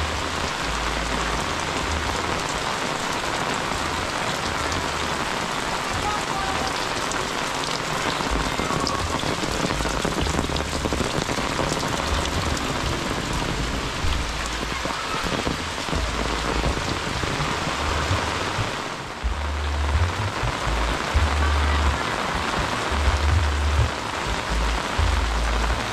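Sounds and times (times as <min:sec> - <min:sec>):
steady rain: 0:00.0 - 0:25.9
low rumble: 0:15.5 - 0:25.9.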